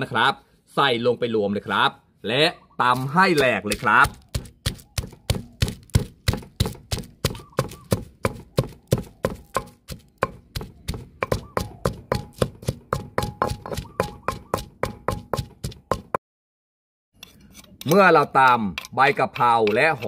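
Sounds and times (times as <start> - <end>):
pestle pounding in mortar: 2.9 - 16.2, 17.8 - 20.0.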